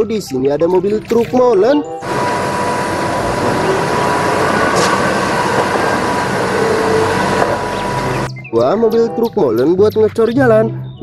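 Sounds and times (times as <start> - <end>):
faint constant whine: 2.0 - 8.3
road noise: 2.0 - 8.3
truck diesel engine running: 2.0 - 8.3.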